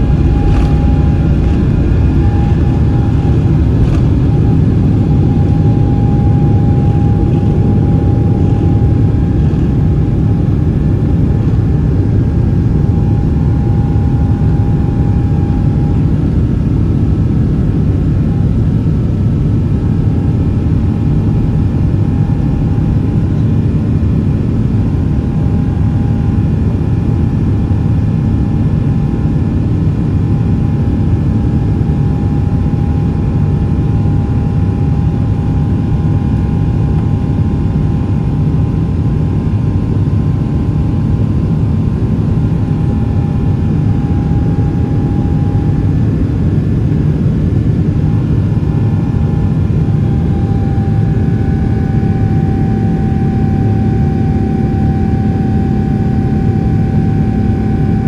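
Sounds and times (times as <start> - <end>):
jet engine roar in cabin: 0.0 - 58.0.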